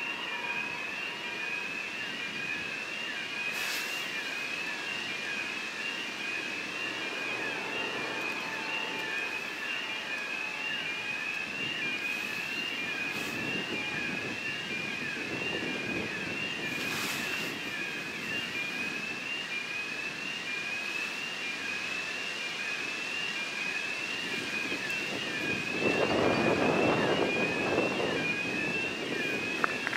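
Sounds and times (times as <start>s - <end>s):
train rumbling: 0.0s - 19.1s
brief hiss: 3.5s - 4.1s.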